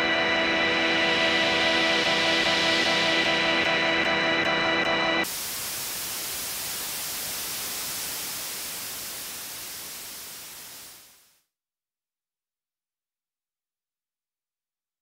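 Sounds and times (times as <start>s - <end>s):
white noise hiss: 5.2s - 11.4s.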